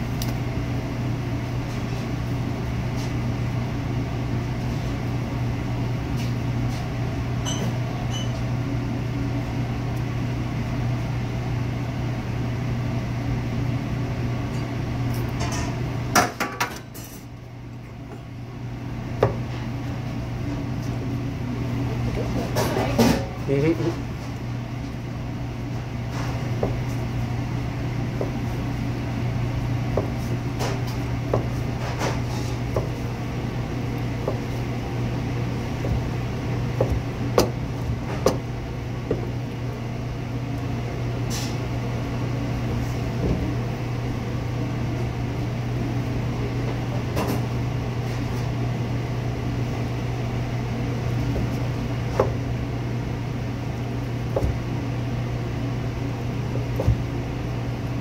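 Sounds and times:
low machine hum: 0.0 - 58.0
knife striking cutting board: 36.8 - 37.6, 54.3 - 54.6.

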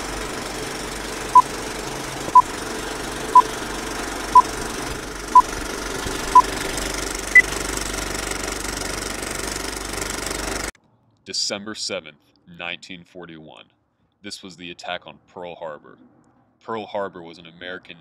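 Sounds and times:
film projector clatter: 0.0 - 10.7.

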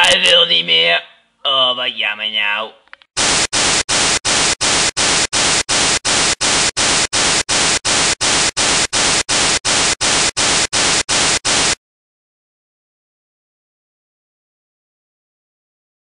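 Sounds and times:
television static hiss: 3.2 - 11.8.

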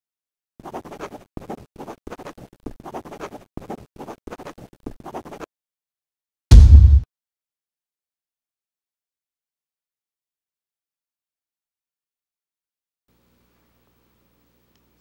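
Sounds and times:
scratchy writing strokes: 0.6 - 5.5
loud deep thump: 6.5 - 7.1.

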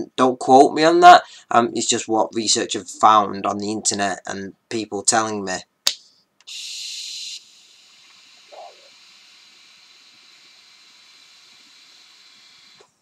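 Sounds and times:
electronic cigarette hiss: 6.4 - 13.0.

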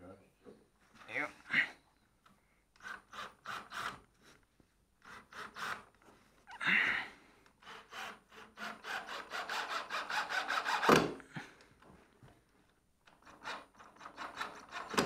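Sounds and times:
scraping and rubbing against timber: 7.8 - 11.2.

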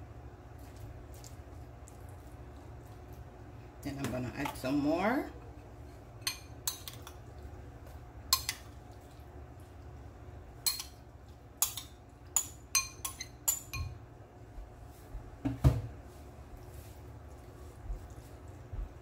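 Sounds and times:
metal spoon clinking on bowl: 10.6 - 11.0, 11.6 - 14.0.

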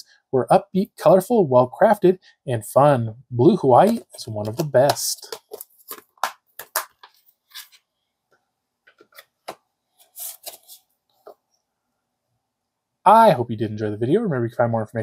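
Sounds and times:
plastic disc case clicking: 3.8 - 7.2.

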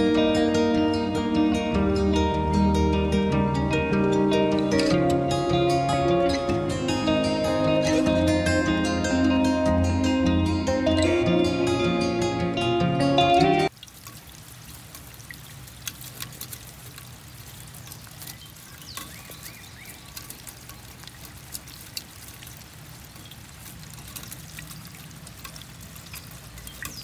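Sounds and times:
water splashing and dripping: 13.6 - 27.0
water pouring from downspout: 13.7 - 27.0.

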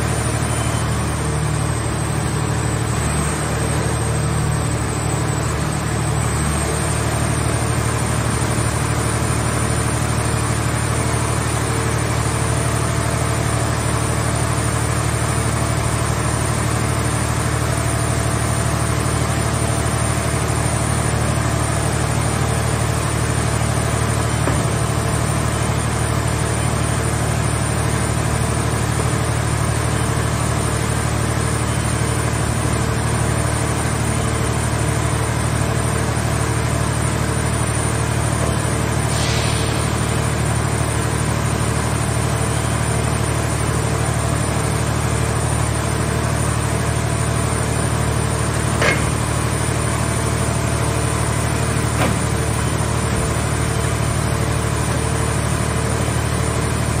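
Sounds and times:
hydraulic power unit humming: 0.0 - 57.0
brief hiss: 39.1 - 40.0
short knocks: 48.8 - 49.2.

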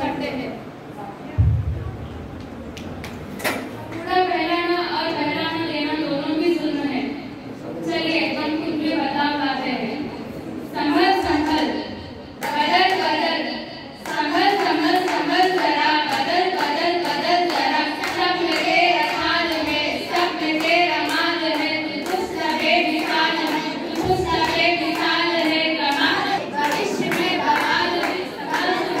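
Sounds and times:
girls singing together: 10.8 - 29.0
hands clapping to a beat: 14.0 - 29.0.

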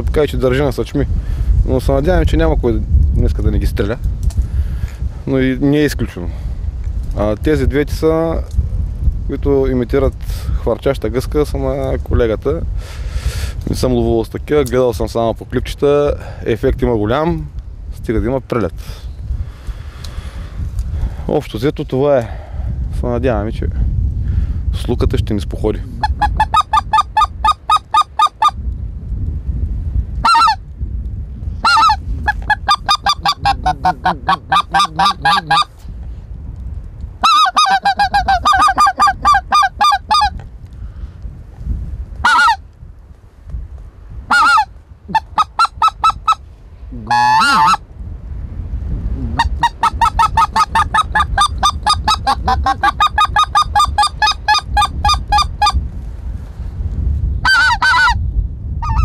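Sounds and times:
goose call honks: 26.0 - 28.6, 30.2 - 30.6, 31.6 - 35.7, 37.2 - 40.3, 42.2 - 42.6, 44.3 - 46.4, 47.0 - 47.8, 49.4 - 55.8, 57.4 - 58.2
warbling goose call note: 26.0 - 28.6, 30.2 - 30.6, 31.6 - 35.7, 37.2 - 40.3, 42.2 - 42.6, 44.3 - 46.4, 47.0 - 47.8, 49.3 - 55.8, 57.4 - 58.2.

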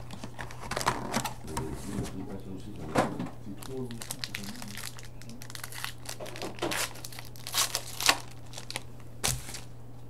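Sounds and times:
card pack wrapper tearing: 3.6 - 9.7.

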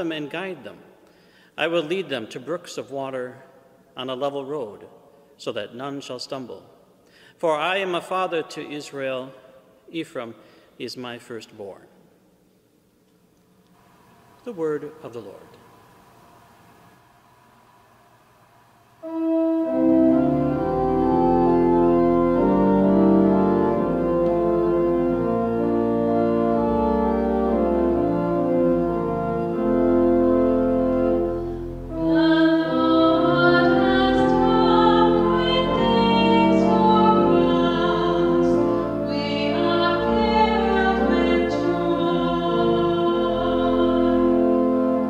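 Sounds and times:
organ playing sustained chords: 18.8 - 45.0
person singing: 31.9 - 44.7.

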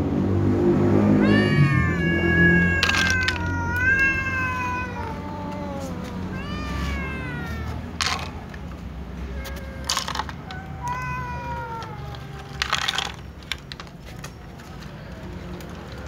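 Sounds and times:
cat meowing: 1.1 - 13.4.

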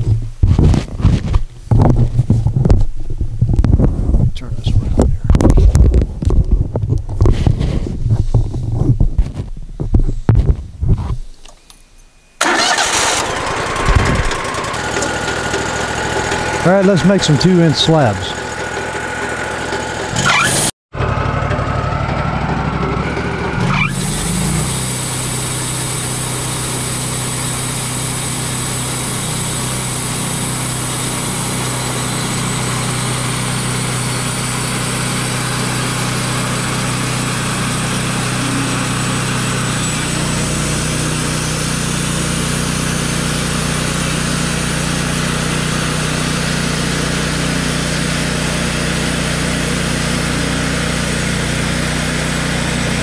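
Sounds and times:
band saw cutting log: 12.4 - 20.7, 22.7 - 53.0
engine humming under load: 12.4 - 53.0.

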